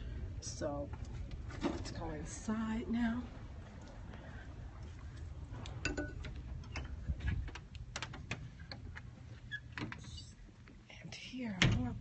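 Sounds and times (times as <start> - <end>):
low rumble: 0.0 - 8.0.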